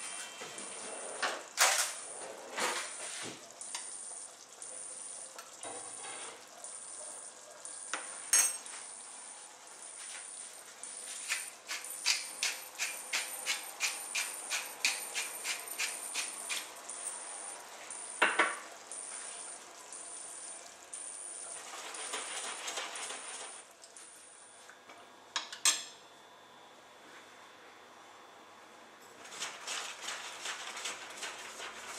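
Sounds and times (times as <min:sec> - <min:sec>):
sauce sizzling in a pan: 0:00.0 - 0:23.8.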